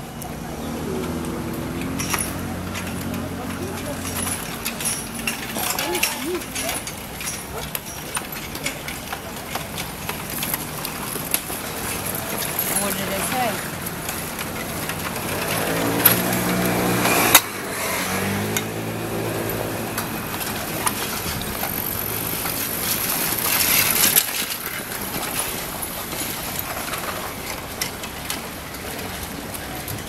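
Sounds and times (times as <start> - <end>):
bicycle riding rumble: 0.0 - 30.0
small engine running: 10.2 - 30.0.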